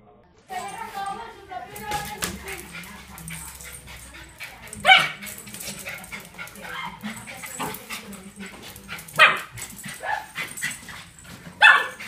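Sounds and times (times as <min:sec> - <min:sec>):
small dog yipping and barking: 0:11.6 - 0:12.0.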